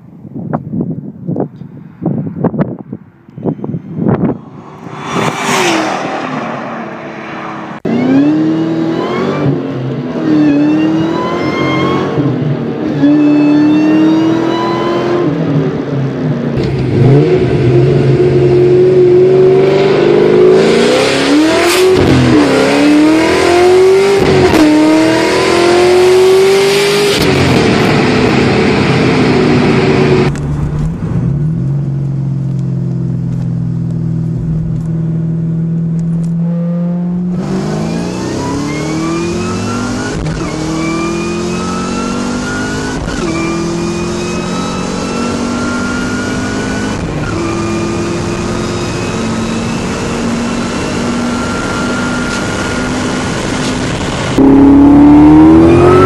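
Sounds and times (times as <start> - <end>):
supercharger whine: 2.4 - 56.0
car engine revving: 3.7 - 56.0.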